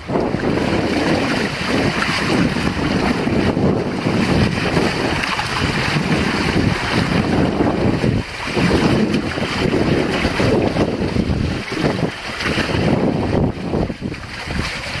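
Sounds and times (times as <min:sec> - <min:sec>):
water rushing along hull: 0:00.0 - 0:15.0
wind buffeting microphone: 0:00.0 - 0:15.0.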